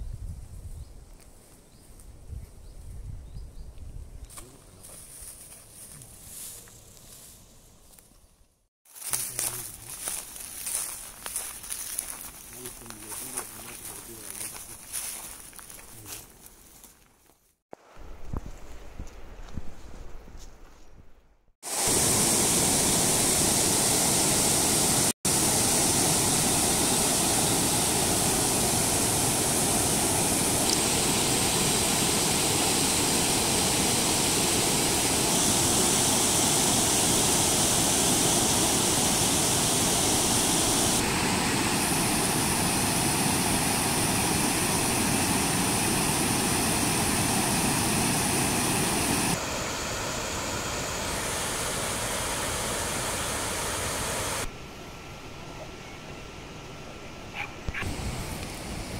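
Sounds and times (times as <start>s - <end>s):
water rushing over a weir: 21.7s - 54.5s.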